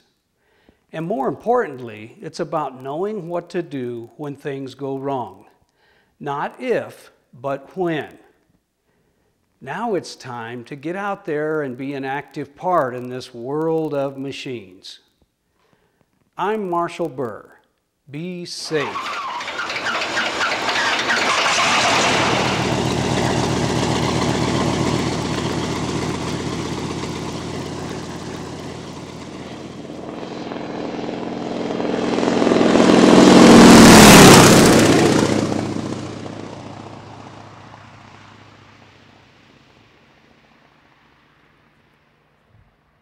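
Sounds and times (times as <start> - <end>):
propeller aircraft engine: 18.8 - 41.5.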